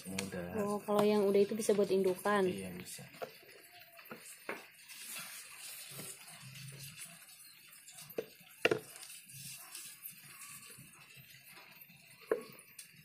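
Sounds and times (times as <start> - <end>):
knocks on plastic basins: 8.6 - 8.9.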